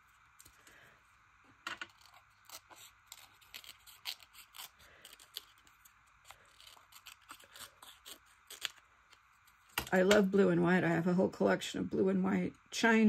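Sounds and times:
scissors snipping paper: 0:01.8 - 0:08.8.

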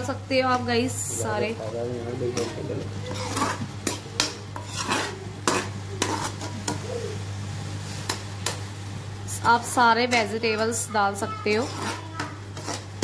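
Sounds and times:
metal spoon scraping a metal pan: 0:02.4 - 0:06.8, 0:09.5 - 0:13.0.

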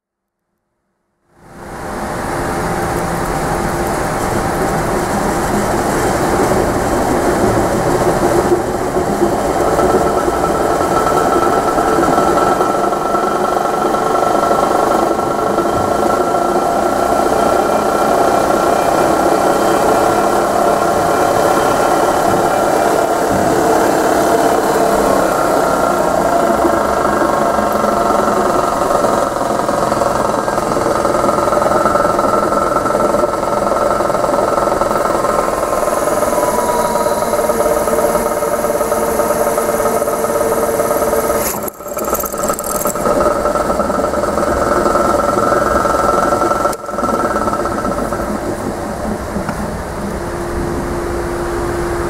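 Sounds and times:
drill press motor hum: 0:09.3 - 0:50.2
drill bit drilling into metal: 0:35.0 - 0:43.7.

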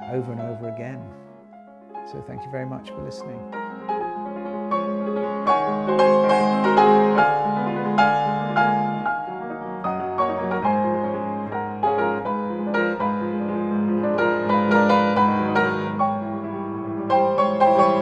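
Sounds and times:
solo piano music: 0:00.0 - 0:18.0.

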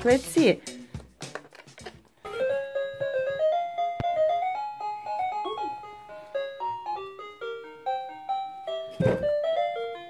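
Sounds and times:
toy electronic melody: 0:02.2 - 0:10.0.

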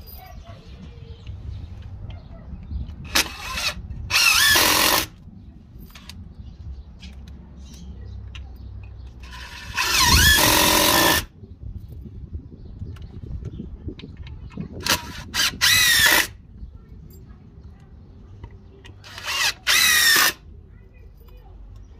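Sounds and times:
impact driver whine: 0:03.0 - 0:05.2, 0:09.2 - 0:11.3, 0:14.8 - 0:16.4, 0:19.0 - 0:20.4.

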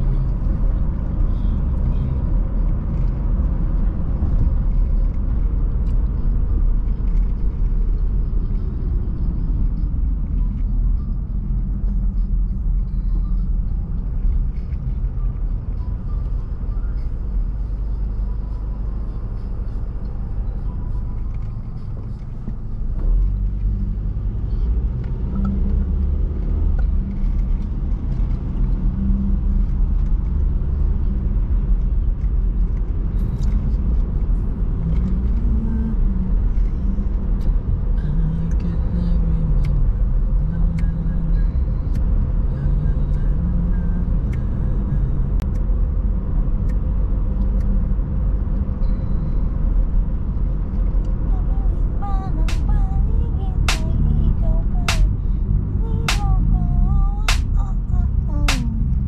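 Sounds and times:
car engine and road rumble: 0:00.0 - 0:59.0.

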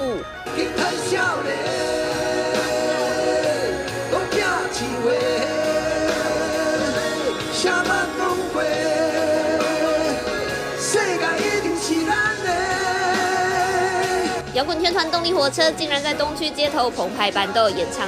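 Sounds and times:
man singing: 0:00.0 - 0:14.5
rock band accompaniment: 0:00.0 - 0:15.0.

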